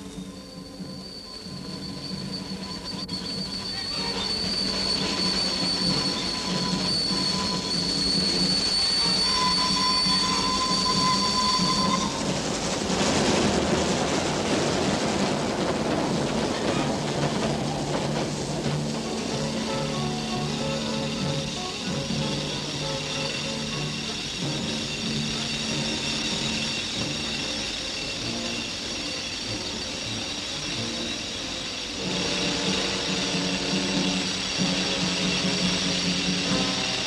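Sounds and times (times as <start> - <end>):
high-pitched machinery squeal: 0.0 - 12.8, 16.5 - 37.0
rough rushing noise: 11.8 - 20.2.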